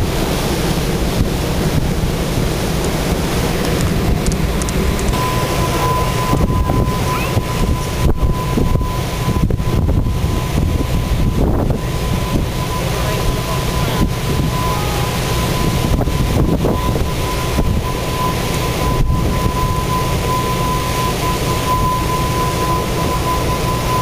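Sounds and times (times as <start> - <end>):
ship rumble and churning wake: 0.0 - 24.0
wind buffeting microphone: 0.0 - 24.0
thin high whine: 5.1 - 24.0.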